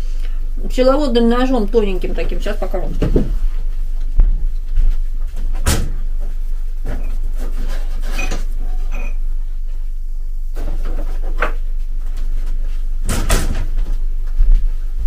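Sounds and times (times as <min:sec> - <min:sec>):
heavy thump: 0:03.0 - 0:03.5, 0:04.1 - 0:06.0.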